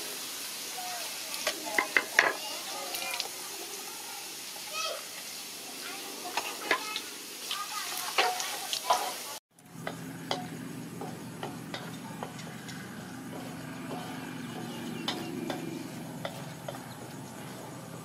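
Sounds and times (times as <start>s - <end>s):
light sizzling: 0.0s - 18.0s
spatula scraping a wok: 6.2s - 18.0s
steady low hum: 9.6s - 18.0s.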